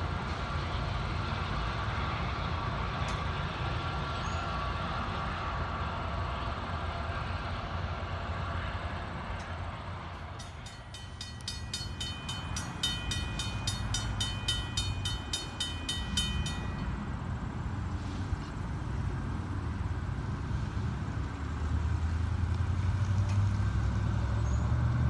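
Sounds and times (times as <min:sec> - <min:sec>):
low train rumble: 0:00.0 - 0:25.0
crossing warning bell ringing: 0:10.0 - 0:17.9.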